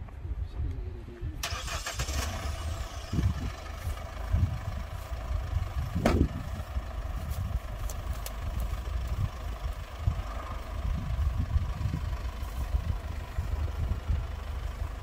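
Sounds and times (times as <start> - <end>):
diesel engine starting and running: 1.4 - 15.0
engine heavy thumps: 3.8 - 14.2.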